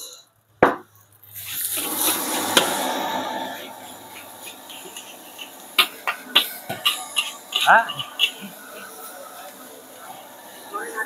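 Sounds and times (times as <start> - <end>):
rice sizzling in a wok: 1.1 - 10.8
spatula knocking against wok: 4.1 - 8.6.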